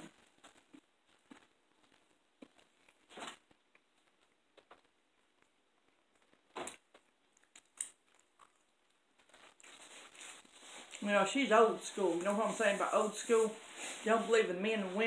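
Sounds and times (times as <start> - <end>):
faint eating mouth noises: 0.0 - 11.0.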